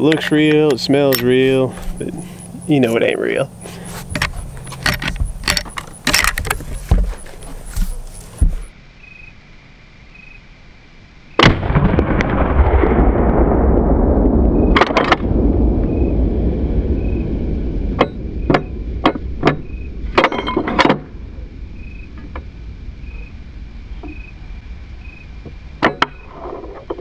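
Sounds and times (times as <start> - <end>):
rifle lever metallic clacks: 4.2 - 6.7
rifle shot: 11.4 - 13.7.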